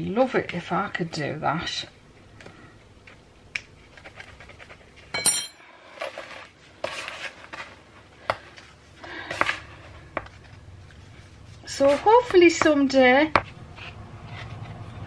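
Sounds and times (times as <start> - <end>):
gritty rustling of packed mixture: 5.8 - 15.0.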